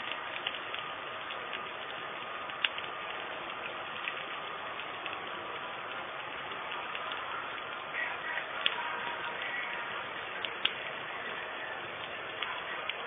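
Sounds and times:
sharp clicks: 0.0s - 5.2s, 10.4s - 10.8s
gas burner hiss: 0.0s - 13.0s.

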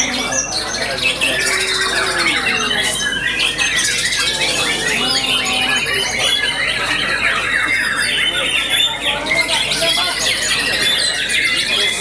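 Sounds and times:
chorus of songbirds: 0.0s - 12.0s
songbird singing: 0.0s - 12.0s.

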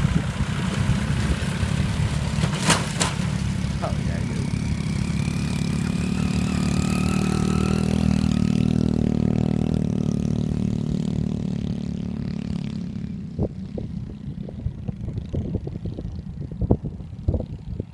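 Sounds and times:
wind buffeting microphone: 0.0s - 2.5s, 13.2s - 17.9s
tractor engine running: 0.0s - 8.3s.

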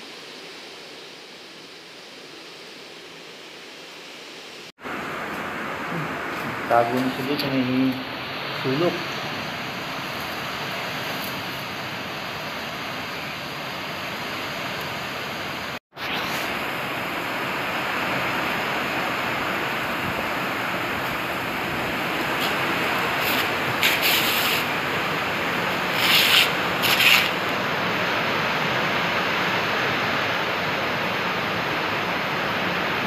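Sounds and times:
heavy rain falling: 4.8s - 15.8s, 16.4s - 33.0s
close brushing noises: 22.2s - 27.6s.

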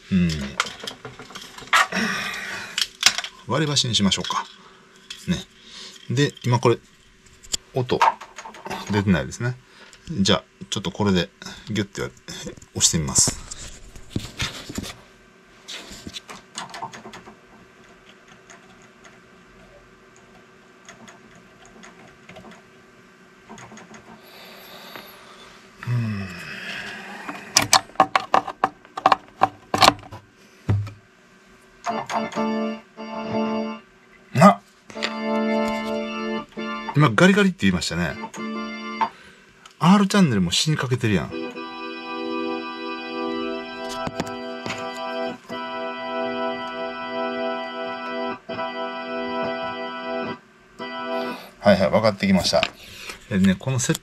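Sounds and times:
speaker crackling and popping: 12.0s - 15.0s, 43.8s - 45.7s
speaker thump: 30.7s - 31.0s
organ-like music tone: 31.8s - 39.4s, 40.6s - 52.6s
speaker crackling: 34.9s - 54.0s.

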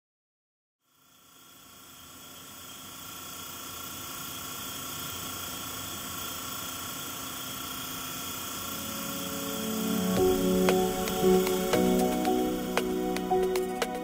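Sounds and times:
steady hissing noise: 0.9s - 14.0s
faint steady tones: 1.1s - 14.0s.

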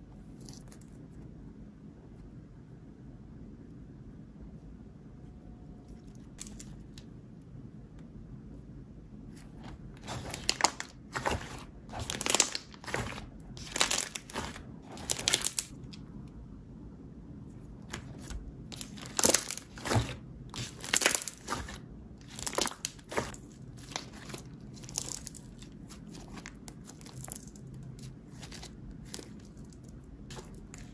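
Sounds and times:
slime squishing: 9.3s - 16.2s, 17.7s - 30.9s.

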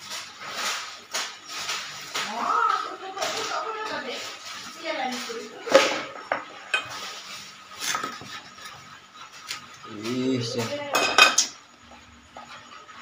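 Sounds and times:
knife scraping metal pan: 3.2s - 11.5s.

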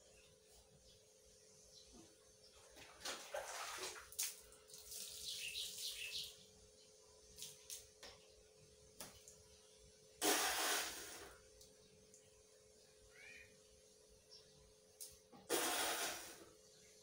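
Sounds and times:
water splashing and pouring: 2.9s - 5.4s.

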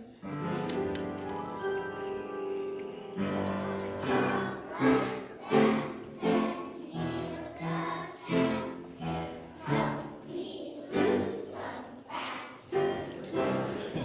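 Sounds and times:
children singing in unison: 2.7s - 14.0s.

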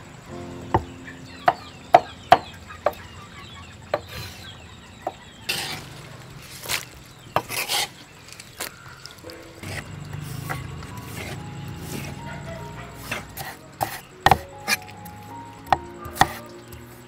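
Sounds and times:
rustling scrapes of stalks: 5.5s - 15.0s
cleaver chopping on wooden board: 13.0s - 14.8s.

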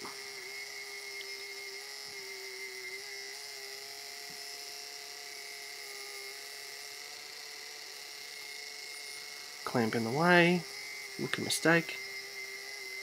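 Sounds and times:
bandsaw whining: 0.0s - 13.0s.

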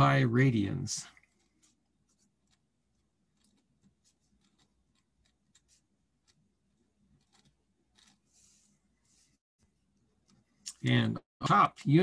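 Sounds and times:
pen writing on paper: 1.3s - 9.2s.

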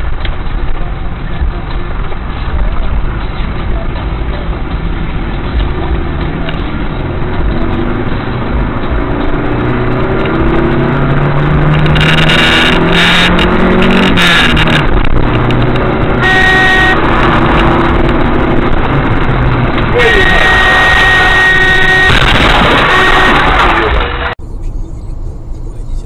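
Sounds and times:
car engine accelerating: 0.0s - 26.0s
road noise inside car: 0.0s - 26.0s
car horn honking: 11.8s - 15.0s, 16.0s - 18.1s, 19.9s - 24.3s.

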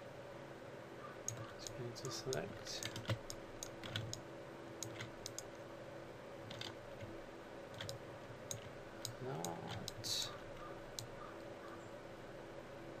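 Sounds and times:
faint steady hum: 0.0s - 13.0s
mouse and keyboard clicks: 1.3s - 4.2s, 4.8s - 5.6s, 6.4s - 7.1s, 7.7s - 11.3s.

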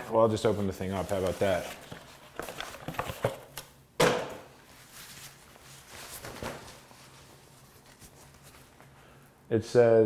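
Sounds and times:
fabric swishing open: 4.6s - 8.8s
fabric cover rustling: 4.6s - 9.2s.

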